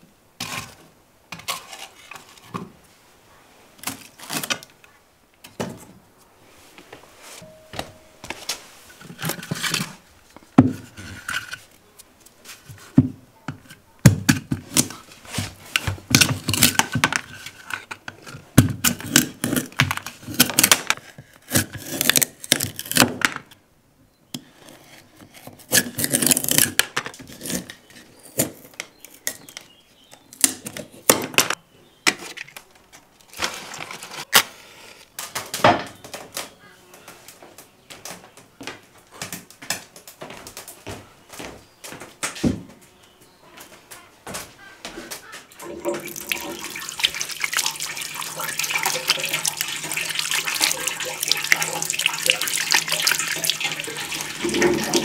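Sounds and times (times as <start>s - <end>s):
kitchenware knocking and scraping: 54.0s - 55.0s.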